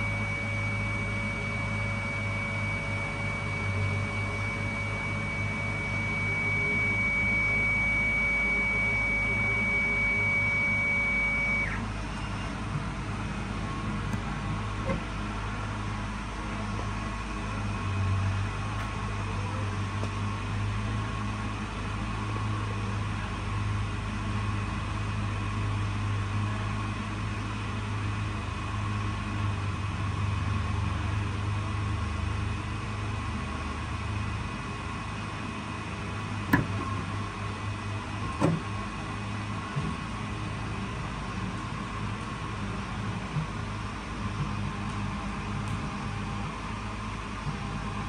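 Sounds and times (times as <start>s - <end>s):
thin whine: 0.0s - 20.2s, 36.0s - 40.0s
printer mechanical hum: 0.0s - 48.0s.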